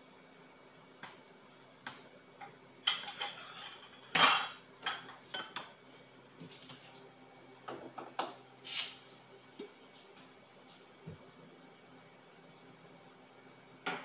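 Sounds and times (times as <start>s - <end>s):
metal utensils clinking: 2.9s - 5.6s.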